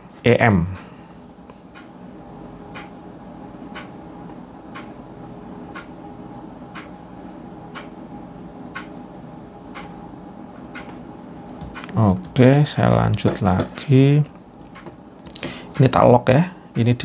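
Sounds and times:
low steady hum: 0.0s - 17.0s
clock ticking: 1.7s - 1.9s, 2.7s - 3.0s, 3.7s - 4.0s, 4.7s - 5.0s, 5.7s - 5.9s, 6.7s - 7.0s, 7.7s - 8.0s, 8.7s - 9.0s, 9.7s - 10.0s, 10.7s - 10.9s, 15.7s - 16.1s.

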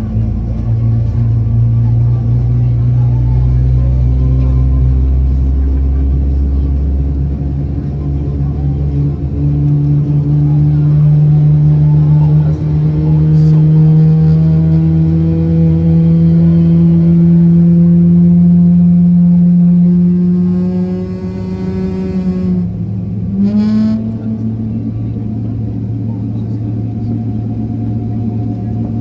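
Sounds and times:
jet engines hum from cabin: 0.0s - 17.1s, 24.2s - 29.0s.

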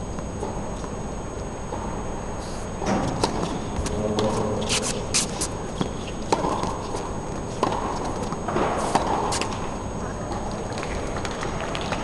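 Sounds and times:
racket hitting tennis ball: 2.9s - 7.0s
tennis ball bouncing: 5.8s - 7.0s, 7.6s - 9.6s.

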